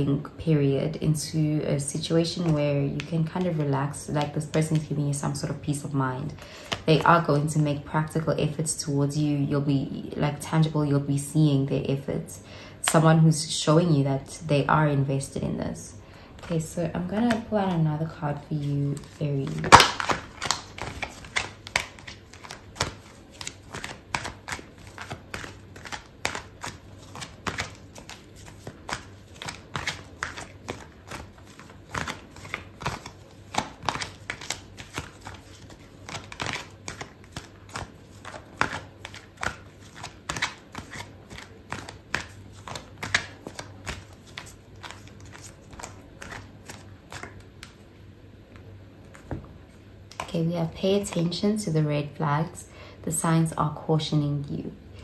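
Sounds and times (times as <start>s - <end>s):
cards being shuffled: 2.2s - 7.8s, 16.4s - 47.9s, 48.5s - 49.5s.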